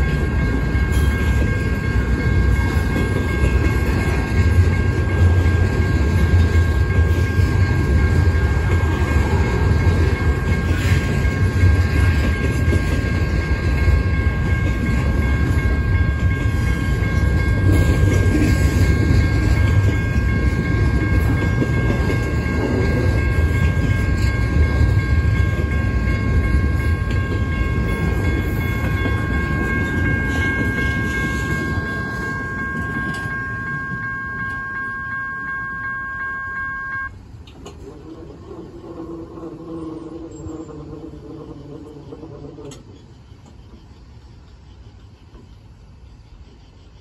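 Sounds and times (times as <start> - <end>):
train wheels rumbling on rails: 0.0 - 35.6, 37.1 - 47.0
railroad crossing bell ringing: 0.0 - 37.4.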